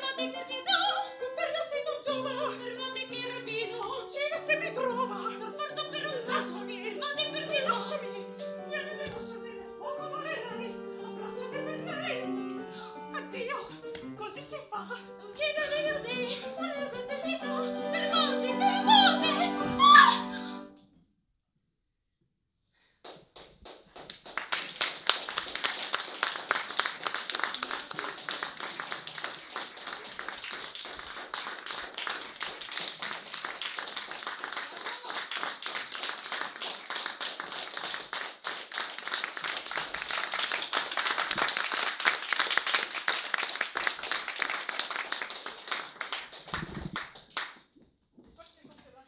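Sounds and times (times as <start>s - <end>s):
audience applauding: 23.0s - 47.6s.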